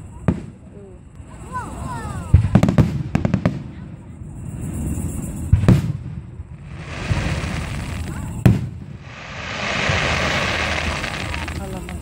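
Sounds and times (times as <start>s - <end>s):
firework shells bursting: 6.7s - 12.0s.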